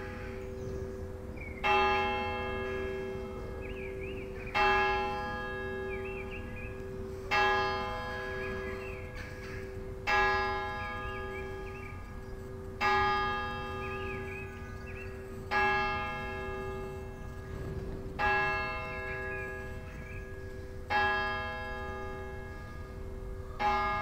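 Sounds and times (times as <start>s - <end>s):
church bell tolling: 0.0s - 24.0s.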